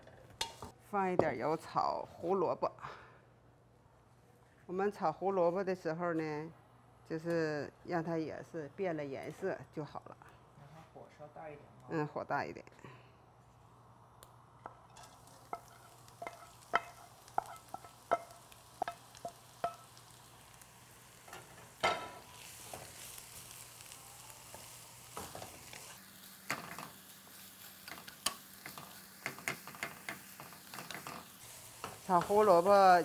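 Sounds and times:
carrots sizzling in oil in a wok: 14.6s - 33.0s.

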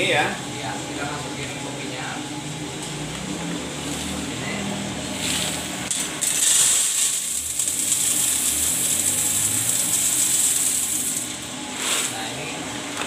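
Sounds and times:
coffee beans pouring rattle: 5.2s - 12.2s.

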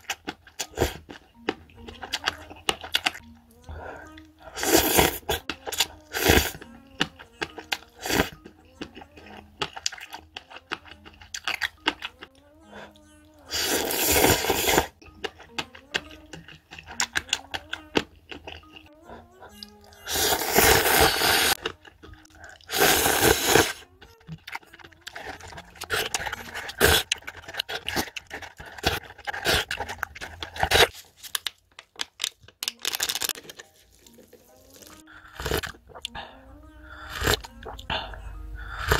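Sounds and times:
light bouncy background tune: 0.0s - 30.9s, 32.4s - 38.9s
chewing and sipping noises: 0.0s - 38.9s
person slurping noodles: 4.4s - 6.6s, 8.0s - 8.4s, 13.5s - 15.0s, 20.0s - 21.6s, 22.4s - 23.8s, 25.1s - 30.9s, 34.6s - 38.9s.

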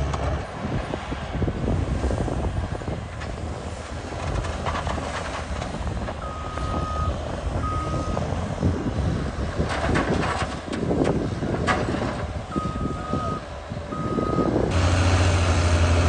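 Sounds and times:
bulldozer diesel engine running: 0.0s - 16.0s
reversing alarm beeping: 6.2s - 8.2s, 12.5s - 14.6s.

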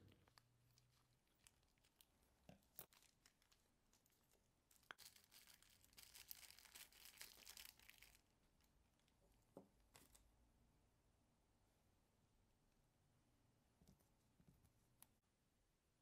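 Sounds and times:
plastic packet crinkling: 0.3s - 8.3s.

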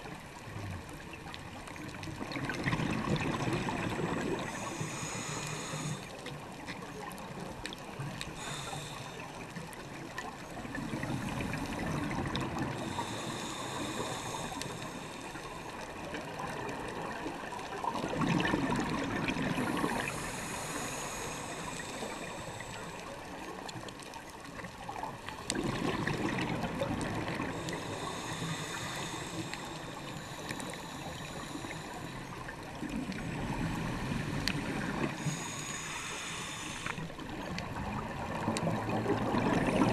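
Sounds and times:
regulator inhale hiss: 3.7s - 6.4s, 7.9s - 9.8s, 10.9s - 16.6s, 19.4s - 23.7s, 26.5s - 37.6s
exhaust bubbles gurgling: 17.9s - 22.6s, 25.4s - 35.8s, 37.2s - 39.9s.

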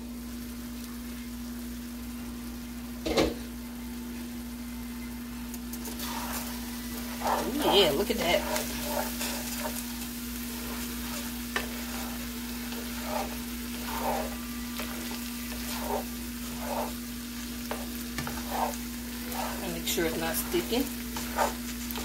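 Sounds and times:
rice sizzling in a pan: 0.0s - 22.0s
steady low hum: 3.5s - 22.0s
spoon scraping across pan: 5.8s - 22.0s.

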